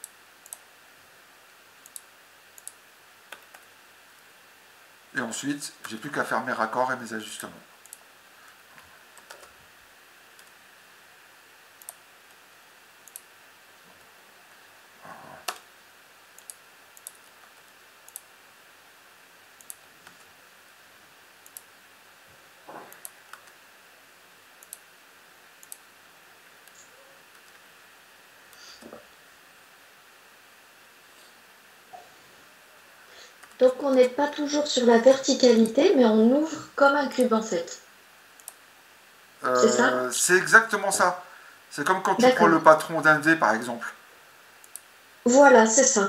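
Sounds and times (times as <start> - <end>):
computer mouse clicks: 0.0 - 0.7, 1.8 - 3.7, 7.8 - 8.0, 9.2 - 9.5, 10.4 - 10.6, 11.8 - 12.4, 13.0 - 13.3, 15.4 - 15.7, 16.4 - 18.3, 19.6 - 20.3, 21.4 - 21.7, 22.8 - 23.6, 24.6 - 24.9, 25.6 - 25.9, 26.6 - 27.6, 33.4 - 34.2, 38.4 - 38.6, 44.6 - 44.9
faint room hiss: 0.0 - 46.0.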